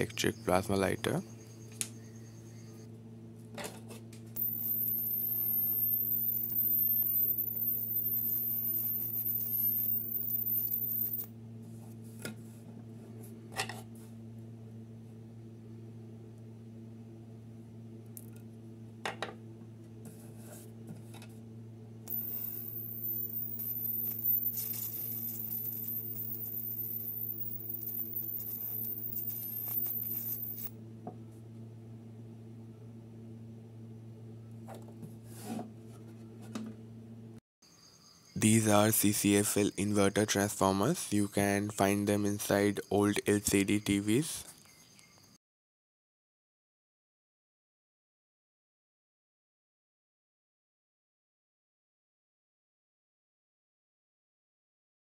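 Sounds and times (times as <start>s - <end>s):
steady low hum: 0.0s - 37.4s
high-voltage arc hissing and whining: 4.4s - 11.3s, 22.1s - 30.7s.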